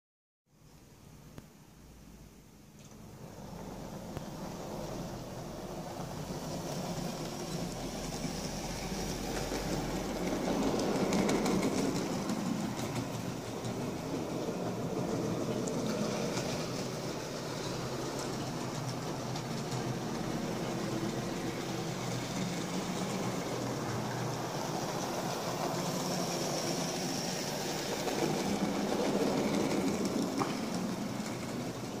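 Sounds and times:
clicking over rail joints: 9.2s - 23.2s, 27.9s - 32.0s
model train motor whirr: 15.0s - 32.0s.

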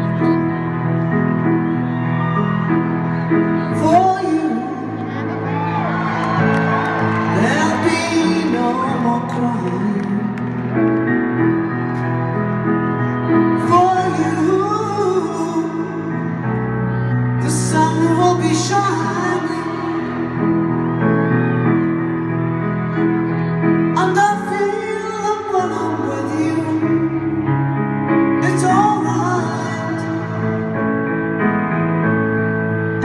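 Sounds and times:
grand piano chords: 0.0s - 33.0s
woman singing ballad: 17.4s - 20.3s, 28.4s - 30.4s.

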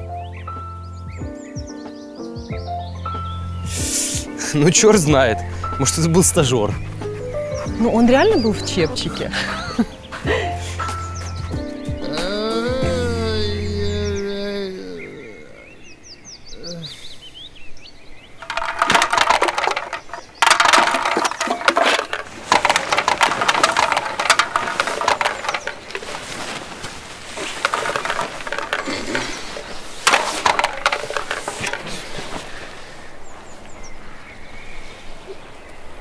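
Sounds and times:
tent fabric rustling: 20.4s - 33.2s.

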